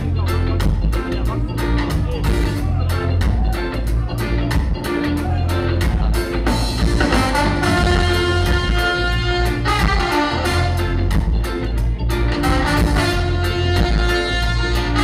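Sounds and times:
ska band playing: 0:00.0 - 0:15.0
horn section melody: 0:06.8 - 0:11.2, 0:12.3 - 0:15.0.

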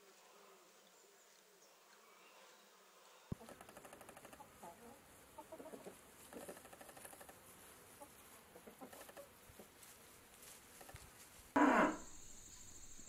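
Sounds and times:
hens clucking: 0:03.3 - 0:09.9.

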